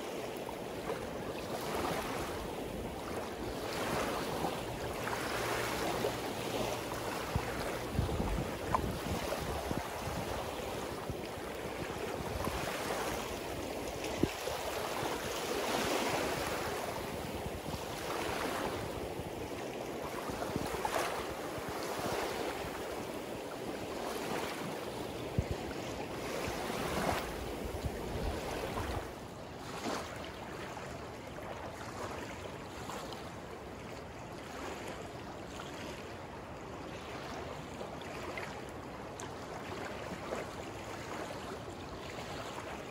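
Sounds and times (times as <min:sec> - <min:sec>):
wind rumble on microphone: 0:00.0 - 0:31.0
river water rushing: 0:00.0 - 0:42.9
small waves washing on shore: 0:00.0 - 0:42.9.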